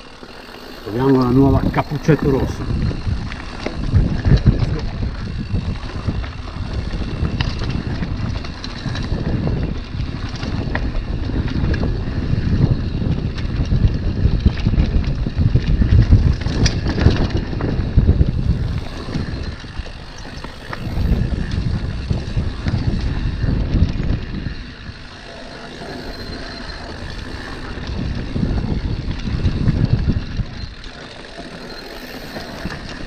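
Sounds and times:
tyres crunching on gravel: 0.0s - 9.2s, 16.4s - 23.6s
wind buffeting microphone: 0.0s - 33.0s.

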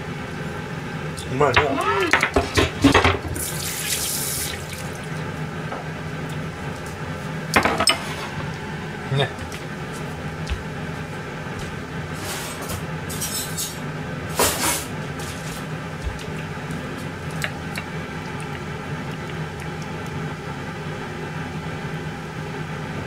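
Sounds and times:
steady machine hum: 0.0s - 23.0s.

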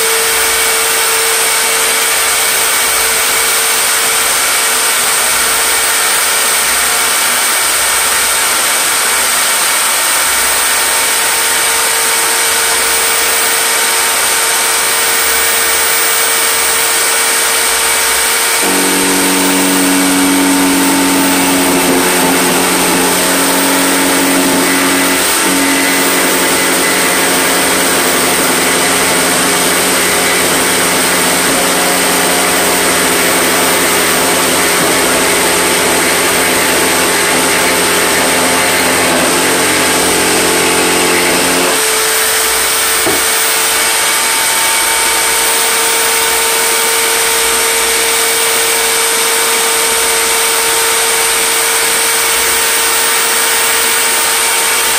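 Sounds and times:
power tool motor whine: 0.0s - 54.9s
high steady tone: 11.8s - 41.8s.

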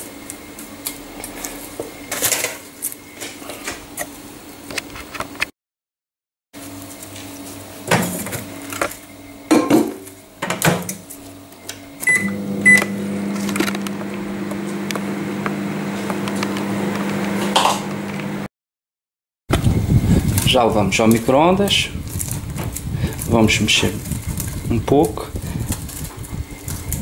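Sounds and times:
microwave oven humming: 6.6s - 18.5s
short keypad beeps: 12.1s - 12.9s.

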